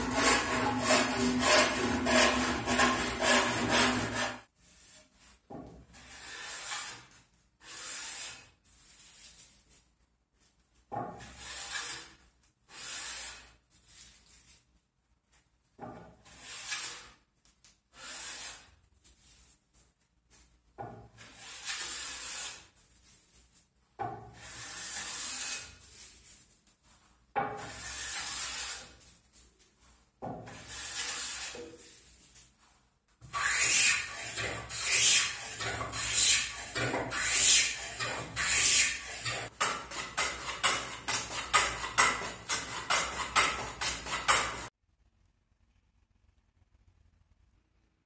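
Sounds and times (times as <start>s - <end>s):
hand plane cutting wood: 0.0s - 4.5s, 6.0s - 8.4s, 11.1s - 13.4s, 16.2s - 17.2s, 18.0s - 18.7s, 21.2s - 22.7s, 24.3s - 25.8s, 27.6s - 29.0s, 30.5s - 31.7s, 33.2s - 44.7s
handsaw rasping: 0.0s - 4.5s, 6.0s - 8.5s, 11.2s - 13.5s, 16.3s - 17.2s, 18.0s - 18.7s, 21.2s - 22.7s, 24.4s - 25.8s, 27.6s - 29.0s, 30.5s - 31.8s, 33.2s - 44.7s.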